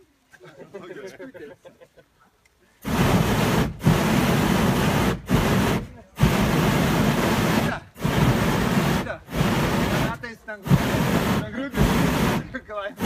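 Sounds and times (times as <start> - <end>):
propane burner blasts: 2.8 - 13.0.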